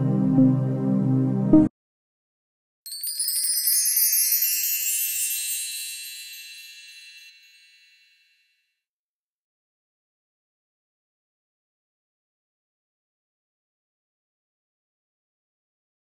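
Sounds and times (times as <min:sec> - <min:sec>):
background music: 0:00.0 - 0:01.7
high tinkling chimes: 0:02.9 - 0:08.6.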